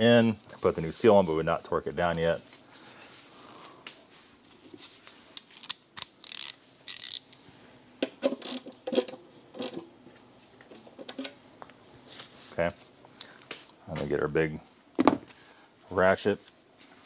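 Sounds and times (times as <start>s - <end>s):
hand ratchet clicking: 5.6s - 7.3s.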